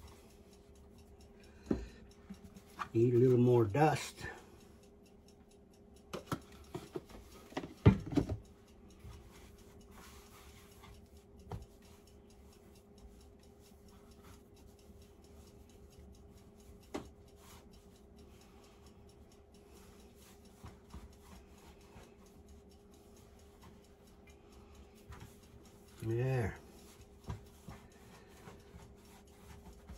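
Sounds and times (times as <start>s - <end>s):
faint steady hum: 0.0s - 29.9s
hands rolling dough: 6.5s - 29.9s.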